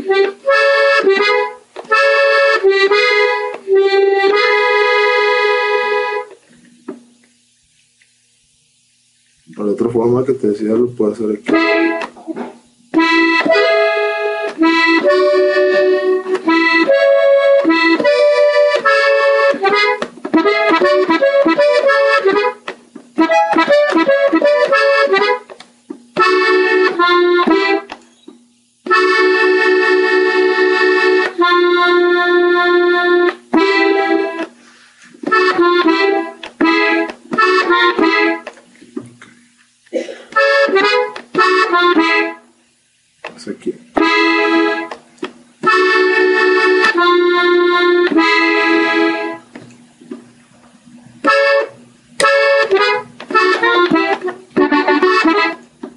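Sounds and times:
button accordion melody: 0:00.0 - 0:06.4, 0:11.2 - 0:12.3, 0:12.9 - 0:28.0, 0:28.8 - 0:38.5, 0:40.3 - 0:42.5, 0:44.0 - 0:45.0, 0:45.6 - 0:49.5, 0:51.2 - 0:55.9.

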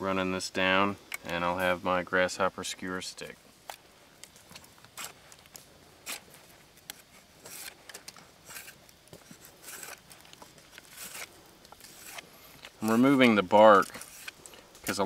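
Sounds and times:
knife scraping and cracking wood: 0:03.7 - 0:15.0.

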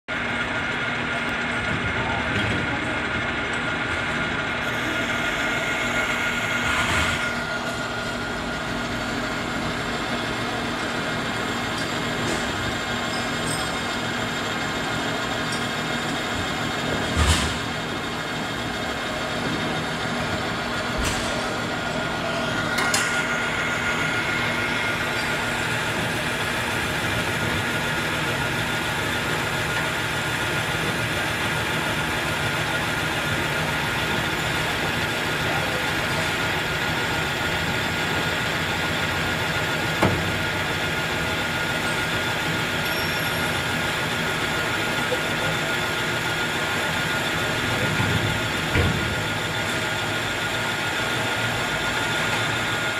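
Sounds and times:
metal lathe humming and whining: 0:02.7 - 0:52.9.

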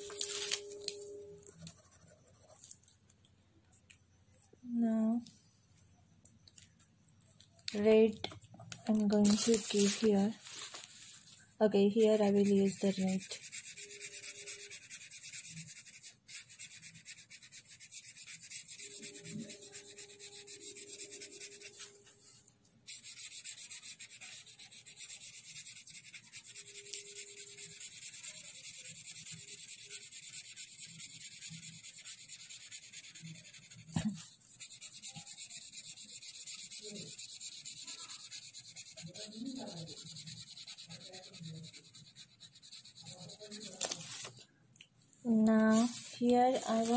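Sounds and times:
felt-tip pen on paper: 0:07.7 - 0:10.4, 0:11.8 - 0:44.4, 0:45.3 - 0:46.9.

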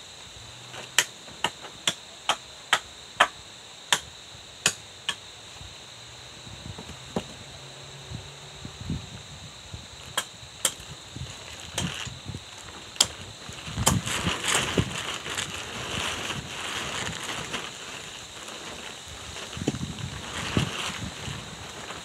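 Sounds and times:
branches rustling and crackling: 0:10.0 - 0:22.0
sharp wooden cracks: 0:10.1 - 0:20.8.

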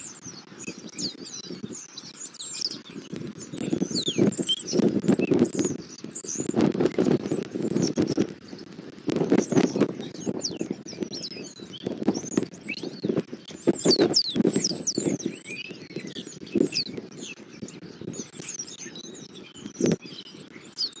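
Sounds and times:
small birds chirping: 0:00.0 - 0:21.0
rustling and crackling: 0:02.5 - 0:20.6.

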